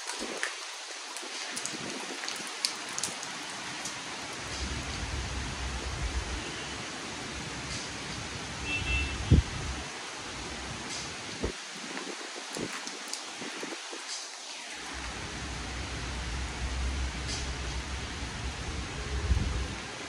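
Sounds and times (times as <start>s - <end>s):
raindrop ticks: 0.0s - 5.0s, 10.9s - 14.4s
steady rain: 0.0s - 20.0s.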